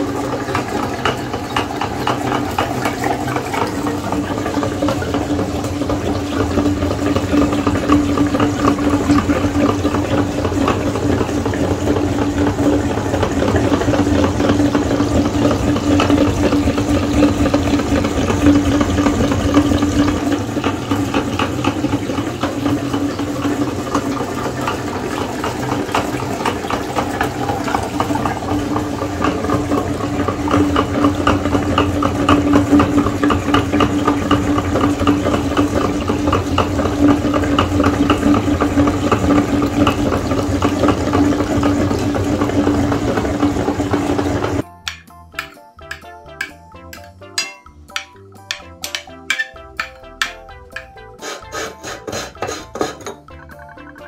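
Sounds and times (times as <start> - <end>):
jelly squelching through a grinder: 45.9 - 53.3.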